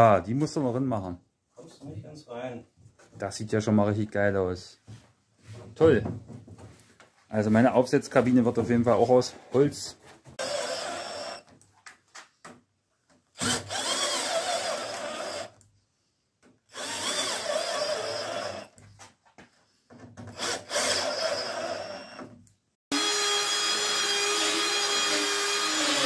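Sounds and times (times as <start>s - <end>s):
power tool running: 10.4s - 11.4s, 13.4s - 15.5s, 16.7s - 18.7s, 20.4s - 22.2s, 22.9s - 26.0s
drill driving screws into wood: 10.4s - 11.6s, 13.3s - 15.6s, 16.7s - 18.8s, 20.2s - 26.0s.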